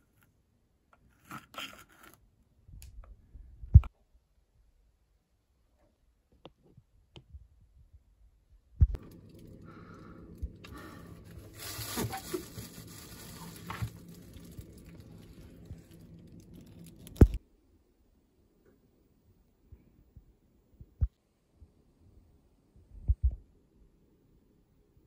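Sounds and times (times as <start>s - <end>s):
freezer low hum: 7.9s - 24.8s.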